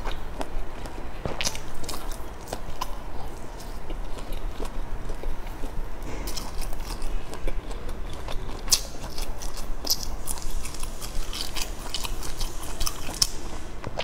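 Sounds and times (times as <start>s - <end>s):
chewing and biting food: 0.0s - 14.0s.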